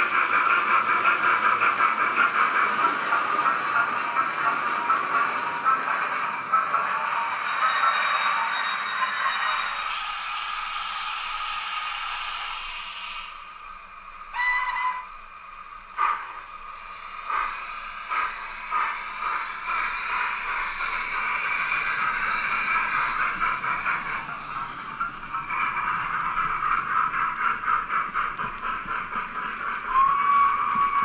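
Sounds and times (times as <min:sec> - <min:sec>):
steam hiss: 0:00.0 - 0:31.0
steam locomotive chuffs: 0:00.0 - 0:31.0
train whistle: 0:14.2 - 0:16.5, 0:29.8 - 0:31.0.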